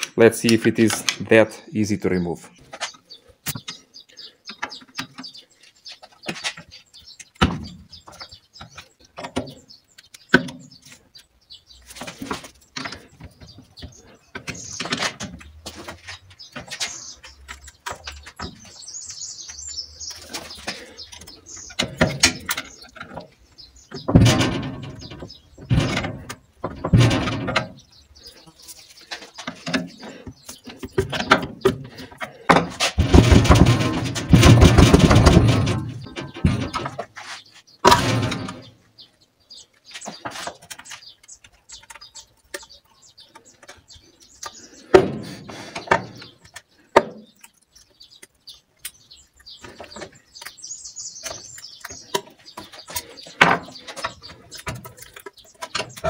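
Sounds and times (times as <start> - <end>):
metal knocks: 23.9 - 28.0, 32.5 - 37.2, 37.8 - 38.7.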